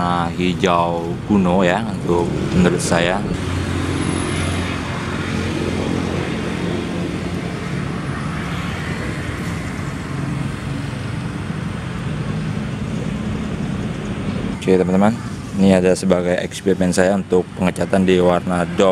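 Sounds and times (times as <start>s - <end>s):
constant rushing noise: 0.0s - 18.9s
engine humming: 0.0s - 18.9s.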